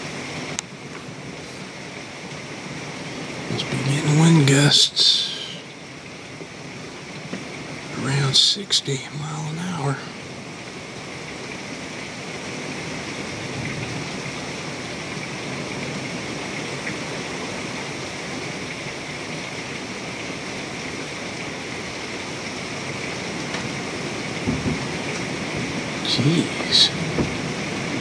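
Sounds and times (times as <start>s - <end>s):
heavy rain pouring: 0.0s - 28.0s
strong wind gusts: 10.1s - 28.0s
low thump: 24.4s - 24.9s.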